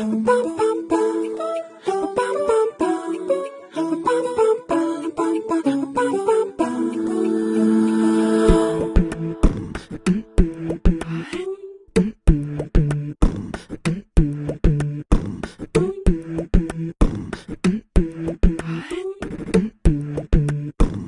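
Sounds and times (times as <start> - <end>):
hummed bending vocal tones: 0.0 - 11.4
beatboxing vocal percussion: 0.0 - 21.0.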